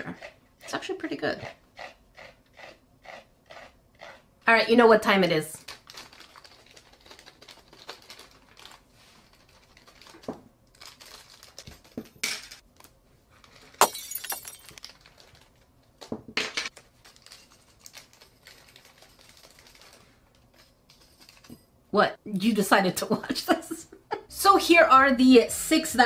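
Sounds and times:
plastic bags crinkling: 5.6s - 11.9s.

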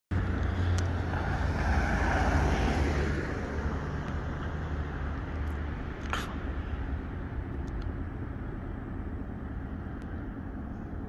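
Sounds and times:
car driving past: 0.1s - 6.3s
steady low rumble: 0.1s - 11.0s.

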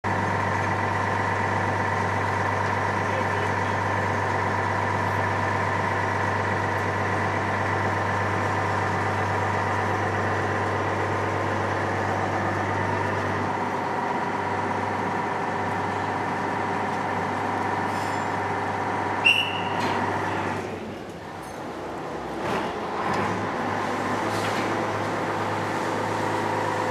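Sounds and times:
diesel engine droning: 0.1s - 26.9s
short high squeal: 19.2s - 20.0s.

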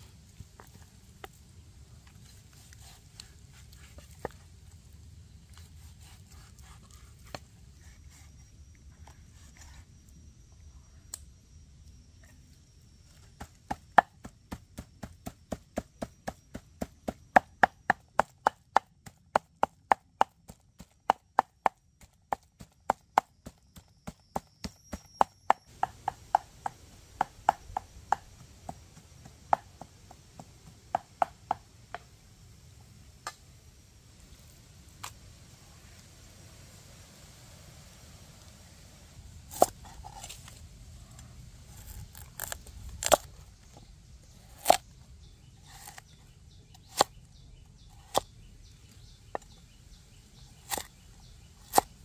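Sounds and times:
knife chopping on wooden board: 50.7s - 50.9s.

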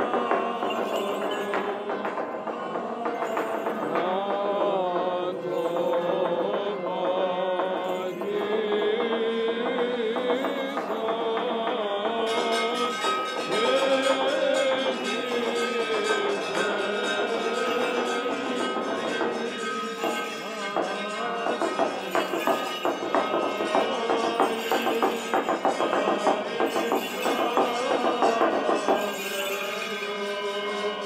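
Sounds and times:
men chanting a hymn: 0.0s - 31.0s.

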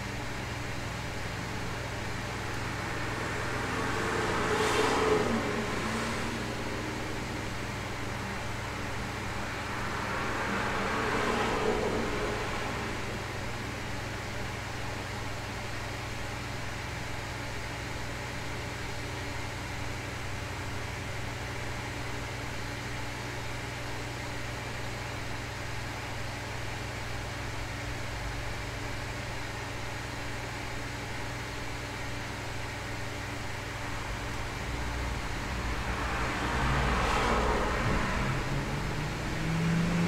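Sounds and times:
low steady hum: 0.0s - 22.2s, 23.3s - 40.0s
passing car rumble: 1.4s - 15.1s, 33.2s - 40.0s
steady noise hiss: 31.6s - 40.0s.

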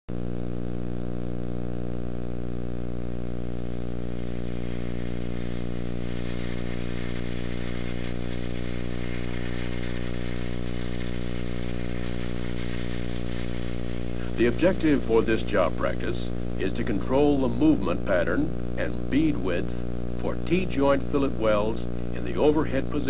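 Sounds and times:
electrical buzz: 0.1s - 23.0s
tape hiss: 0.1s - 23.0s.

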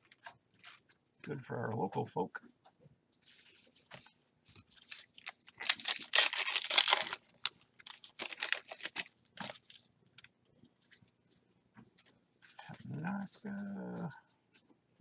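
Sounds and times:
cards and wrapper rustling: 3.2s - 11.0s
wrapper tearing and crinkling: 4.6s - 9.8s.

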